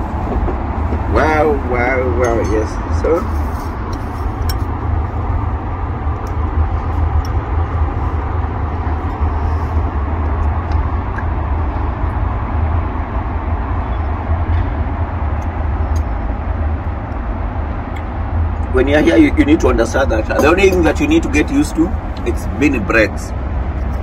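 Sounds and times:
city traffic: 0.0 - 24.0.

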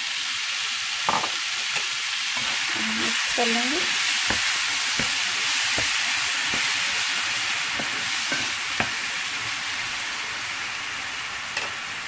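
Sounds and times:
vegetables sizzling in a frying pan: 0.0 - 12.0
utensil tapping a pan: 4.2 - 6.9, 7.7 - 9.0.

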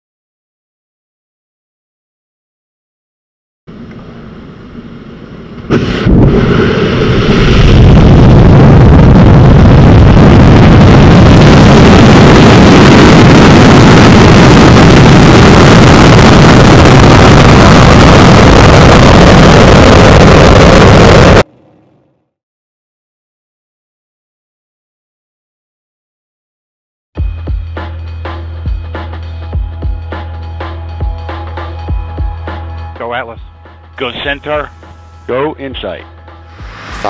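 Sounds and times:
rocket engine roaring: 5.5 - 21.5, 36.4 - 37.0.

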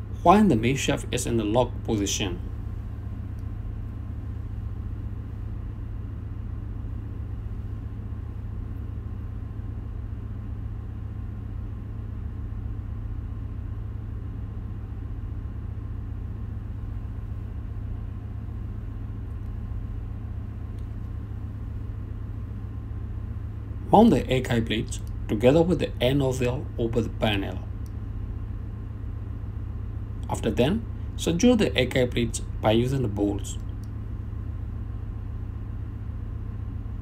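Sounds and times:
engine-room machinery rumble: 0.0 - 37.0
faint steady hum: 0.0 - 37.0.

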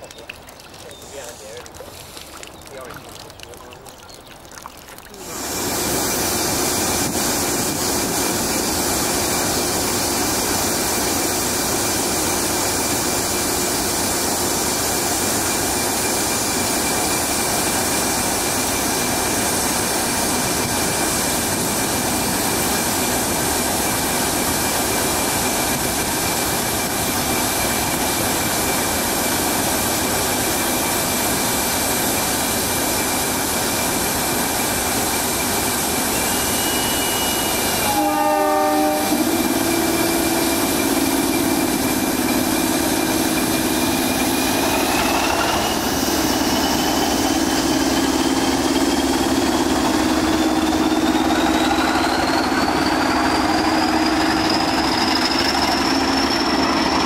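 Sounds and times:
diesel locomotive engine running: 5.2 - 57.0
train horn: 36.4 - 40.5.

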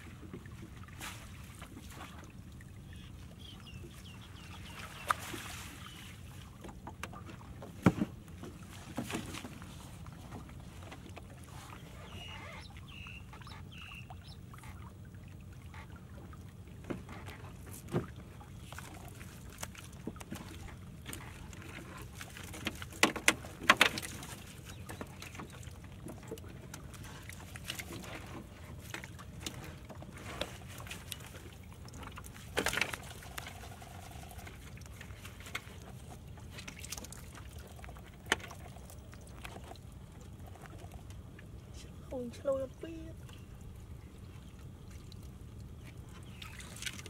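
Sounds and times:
fish and crabs knocking on hull: 6.6 - 9.5, 16.8 - 18.4, 19.9 - 26.9.

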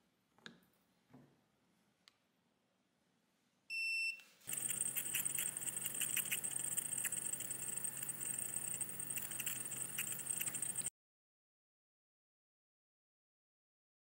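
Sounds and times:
diffuser beep: 3.7 - 10.9
crackling bubbling: 4.5 - 10.9
nebulizer humming and hissing: 4.5 - 10.9.

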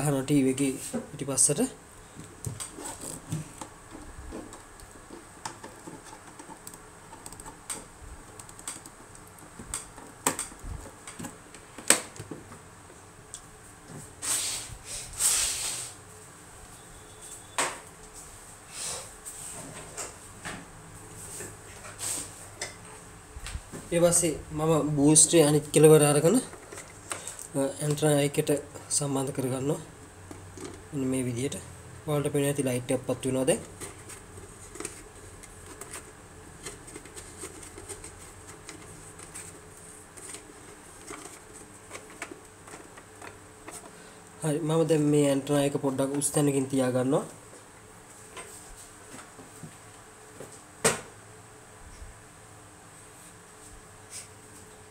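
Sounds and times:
faint steady high whine: 15.9 - 54.9.

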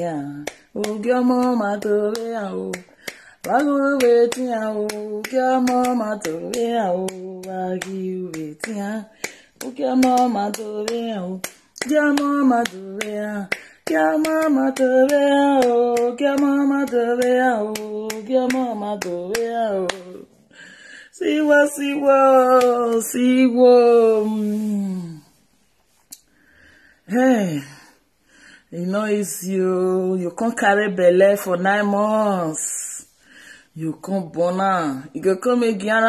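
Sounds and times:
hands keeping a beat: 0.0 - 20.4
woman singing unaccompanied: 0.0 - 25.4, 27.0 - 36.0.

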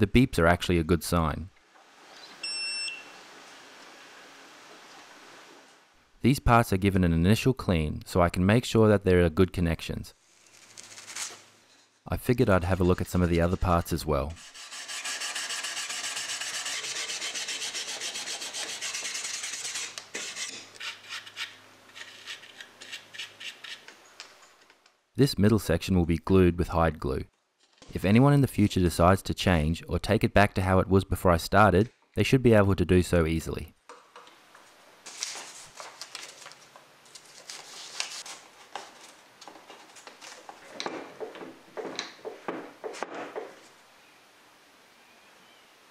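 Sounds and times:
paper rustling: 10.2 - 11.9, 35.0 - 41.2
brush scrubbing wood: 12.8 - 20.6.

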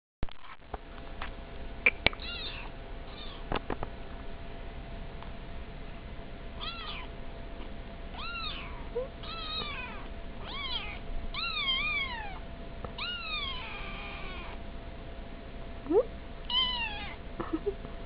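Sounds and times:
kittens mewing: 1.9 - 3.5, 6.6 - 7.1, 8.1 - 14.6, 16.5 - 17.8.

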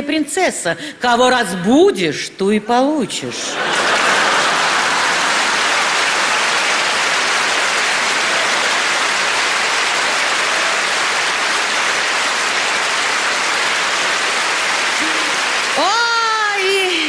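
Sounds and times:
audience applauding: 3.5 - 17.0.

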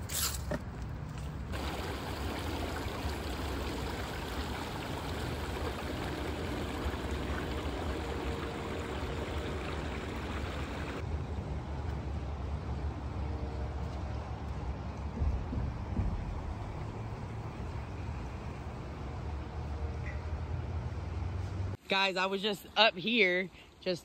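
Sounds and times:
water rushing over rocks: 1.5 - 11.0.

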